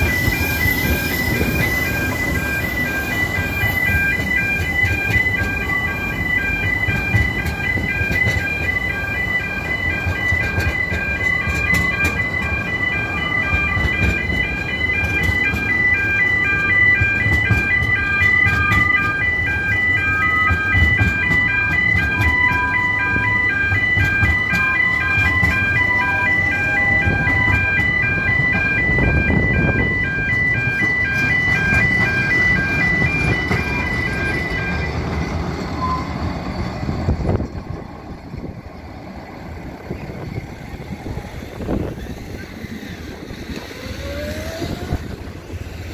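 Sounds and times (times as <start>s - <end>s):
level crossing alarm pulsing: 0.0s - 38.4s, 39.6s - 45.9s
railway carriages rumbling: 0.0s - 45.9s
wheel squeals: 31.1s - 37.9s.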